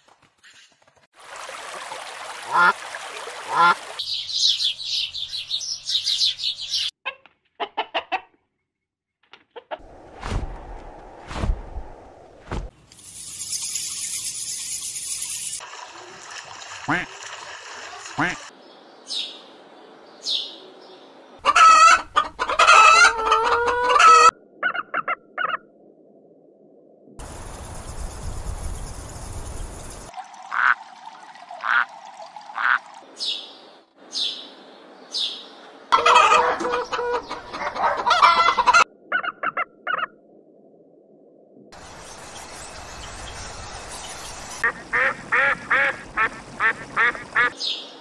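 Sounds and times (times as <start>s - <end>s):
clucking fowl calls: 7.0s - 8.4s, 21.4s - 25.6s, 35.9s - 40.1s.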